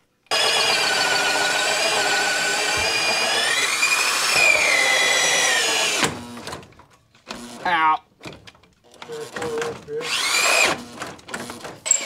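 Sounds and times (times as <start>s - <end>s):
power drill boring into wood: 0.3s - 6.6s, 9.3s - 12.0s.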